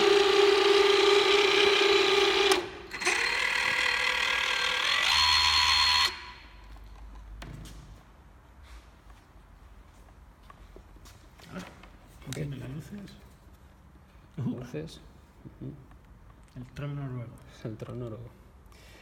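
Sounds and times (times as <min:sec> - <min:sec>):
electric thrusters whining: 0:00.0 - 0:06.5.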